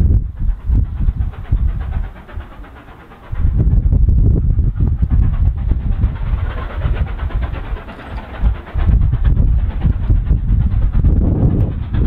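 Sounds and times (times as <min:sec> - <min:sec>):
loud low rumble: 0:00.0 - 0:02.6, 0:03.2 - 0:12.0
steam locomotive exhaust puffing: 0:00.0 - 0:12.0.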